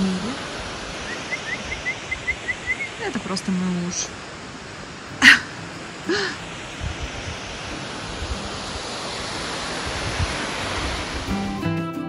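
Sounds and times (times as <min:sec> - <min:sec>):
wind buffeting microphone: 0:04.8 - 0:11.4.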